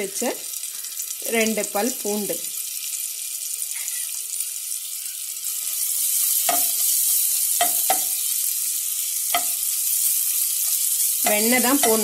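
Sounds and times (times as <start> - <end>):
garlic sizzling in butter: 0.0 - 12.0
spoon knocking against pan: 6.5 - 6.8, 7.6 - 8.2, 9.3 - 9.6, 11.2 - 12.0.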